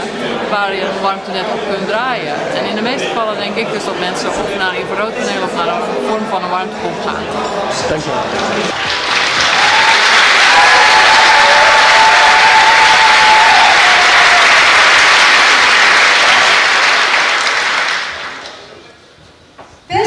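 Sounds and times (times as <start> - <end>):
large audience applauding: 8.4 - 18.7.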